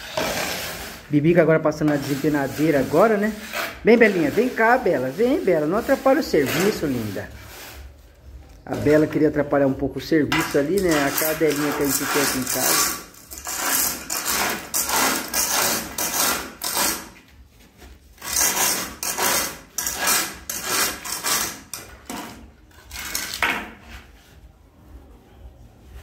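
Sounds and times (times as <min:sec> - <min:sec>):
straightedge scraping cement screed: 0:00.0 - 0:01.2, 0:01.8 - 0:07.9, 0:10.3 - 0:17.3, 0:18.2 - 0:23.6.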